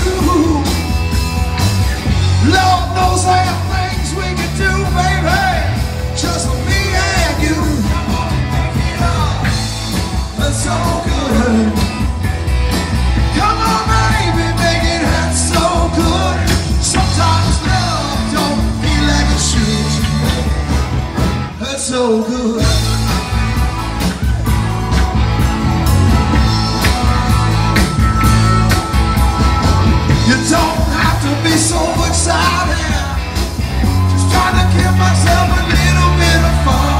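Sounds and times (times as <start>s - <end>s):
person singing: 0.0s - 0.9s, 2.4s - 12.1s, 13.2s - 20.5s, 30.1s - 36.9s
bass guitar: 0.0s - 36.9s
drums: 0.0s - 36.9s
electric guitars: 0.0s - 36.9s.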